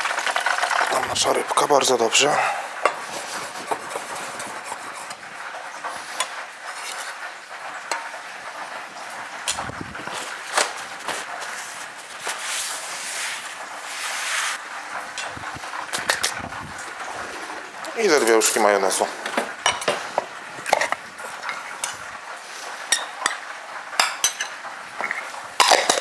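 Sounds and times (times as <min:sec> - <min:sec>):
fish sizzling in hot fat: 0:00.0 - 0:26.0
dishes knocking and clinking: 0:02.8 - 0:05.2, 0:15.1 - 0:22.0, 0:22.9 - 0:26.0.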